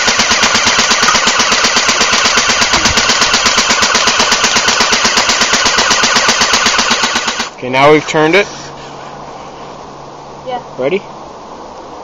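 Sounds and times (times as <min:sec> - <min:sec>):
airsoft gun full-automatic fire: 0:00.0 - 0:07.6.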